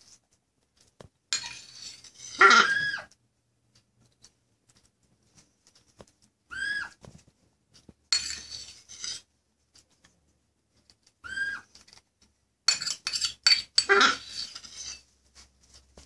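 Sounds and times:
spoon clicking and scraping: 0:01.3 - 0:02.4, 0:08.1 - 0:09.3, 0:12.7 - 0:15.1.

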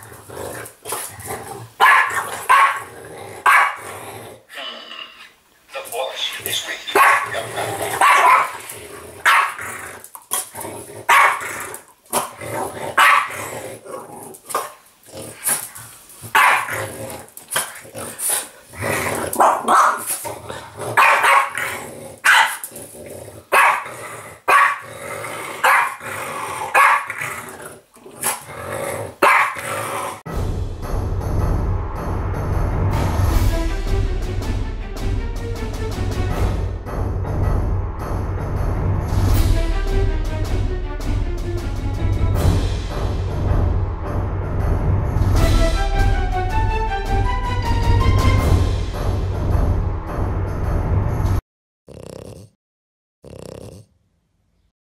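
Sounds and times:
dog barking and growling: 0:00.0 - 0:05.3, 0:06.9 - 0:30.3, 0:51.9 - 0:52.6, 0:53.2 - 0:53.9
music: 0:30.3 - 0:51.4.

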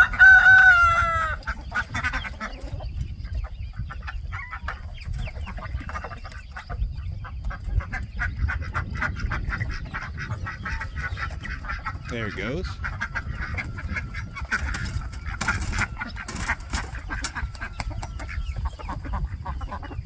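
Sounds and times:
rooster crowing: 0:00.0 - 0:01.4
chickens clucking: 0:00.0 - 0:20.0.

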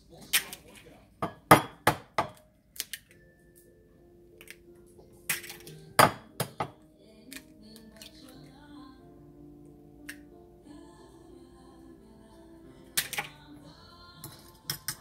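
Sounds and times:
faint music: 0:00.0 - 0:15.0
eggs cracking on ceramic bowl: 0:00.3 - 0:03.2, 0:04.4 - 0:08.4, 0:10.0 - 0:10.3, 0:13.0 - 0:13.4.

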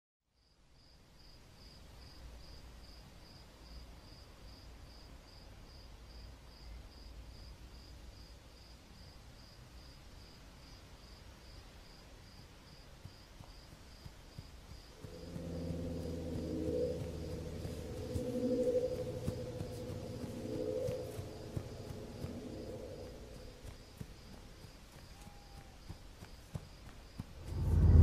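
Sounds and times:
cricket chirping: 0:00.4 - 0:28.0
low steady rumble: 0:14.9 - 0:24.2, 0:27.2 - 0:28.0.

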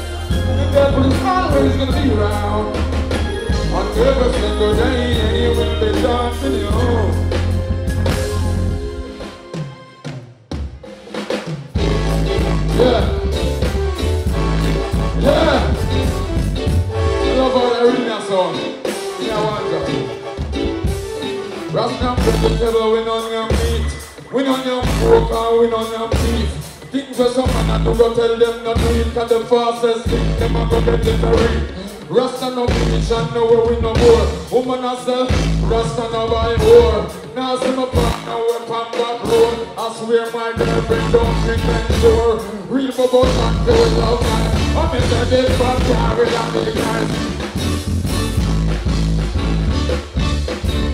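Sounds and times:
live band with heavy bass: 0:00.0 - 0:50.9
man singing into microphone: 0:00.3 - 0:02.8, 0:03.5 - 0:07.4, 0:21.7 - 0:47.3.

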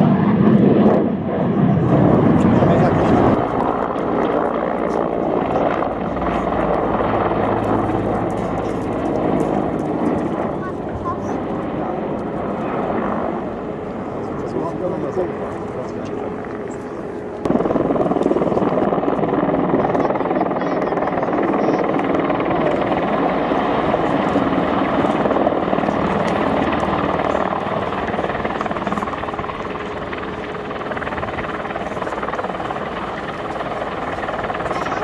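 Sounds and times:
helicopter rotor and turbines: 0:00.0 - 0:35.0.

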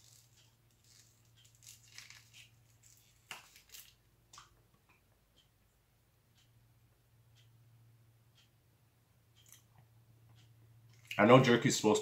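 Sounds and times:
plastic wrapper crinkling: 0:00.0 - 0:04.0.

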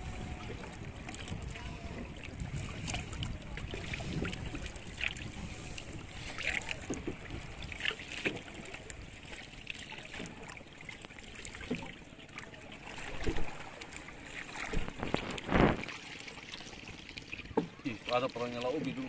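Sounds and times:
water sloshing around boat: 0:00.0 - 0:19.0
short splashes or knocks: 0:12.8 - 0:19.0.

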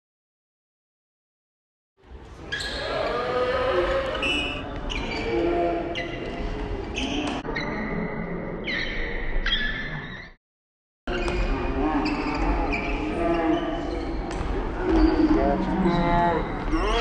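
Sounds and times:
players' voices: 0:02.4 - 0:07.4, 0:11.1 - 0:17.0.

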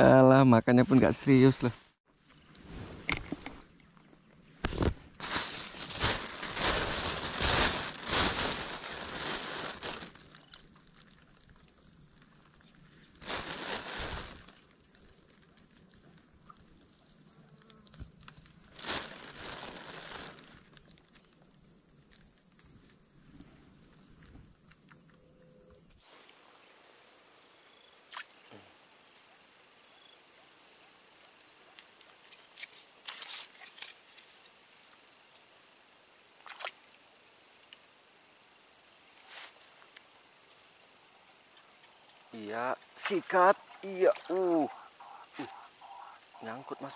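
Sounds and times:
high-pitched insect chorus: 0:00.0 - 0:46.9
plastic bag crinkling: 0:05.2 - 0:10.6, 0:13.2 - 0:14.6, 0:18.7 - 0:20.6.

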